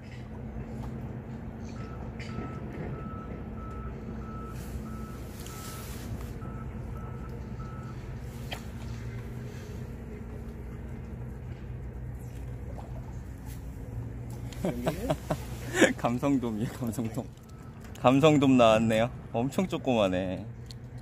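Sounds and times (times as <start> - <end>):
low hum of machinery: 0.0 - 21.0
reversing alarm beeping: 1.7 - 8.2, 17.4 - 18.6.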